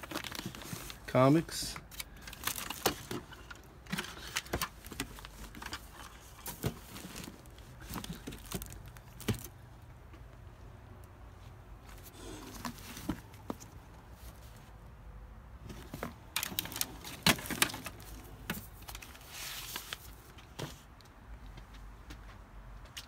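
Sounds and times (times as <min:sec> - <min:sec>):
rustling: 0:00.0 - 0:01.1, 0:01.9 - 0:09.6, 0:11.4 - 0:14.8, 0:15.6 - 0:20.9.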